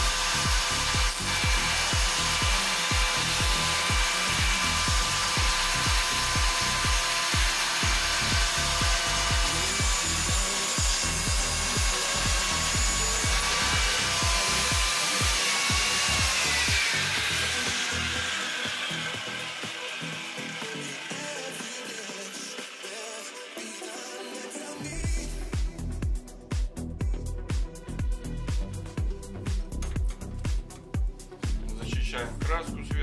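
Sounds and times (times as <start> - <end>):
angle grinder grinding steel: 0.0 - 25.6
background music with beat: 0.0 - 33.0.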